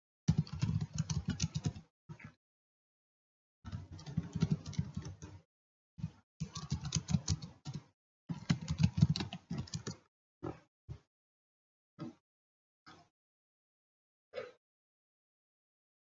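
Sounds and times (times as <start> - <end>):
keyboard typing: 0.3 - 1.9, 3.7 - 5.4, 6.0 - 10.0.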